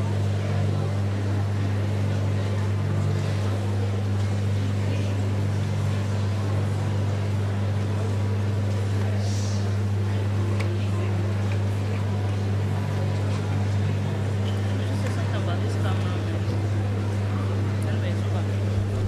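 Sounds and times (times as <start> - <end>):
steady low hum: 15.5 - 19.0.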